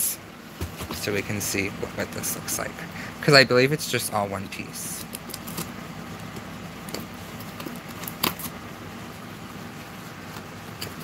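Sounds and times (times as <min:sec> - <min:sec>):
scissor blade slitting tape: 0:07.0 - 0:08.6.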